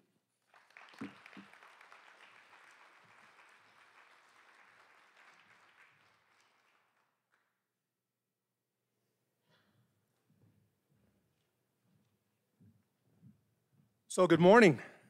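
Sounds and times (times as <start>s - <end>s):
faint audience applause: 0.0s - 7.7s.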